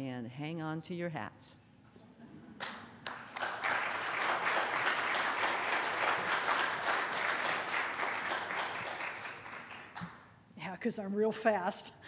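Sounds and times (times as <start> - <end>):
congregation applauding: 2.6 - 10.3.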